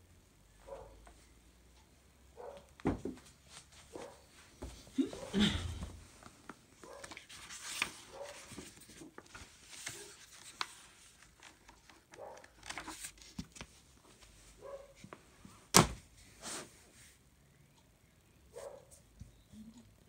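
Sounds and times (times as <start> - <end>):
faint clicks and rustles: 5.9 - 15.3.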